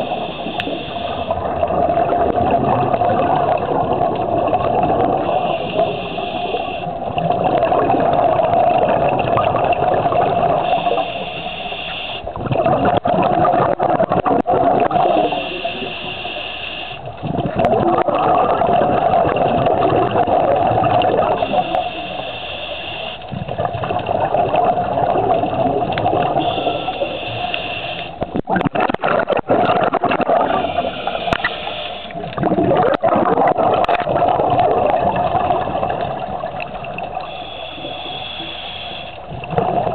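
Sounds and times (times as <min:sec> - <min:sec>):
regulator inhale hiss: 0:00.0 - 0:01.4, 0:05.2 - 0:06.9, 0:10.6 - 0:12.3, 0:15.2 - 0:17.1, 0:21.3 - 0:23.3, 0:26.4 - 0:28.2, 0:30.6 - 0:32.2, 0:37.2 - 0:39.3
exhaled air bubbling: 0:00.0 - 0:39.9.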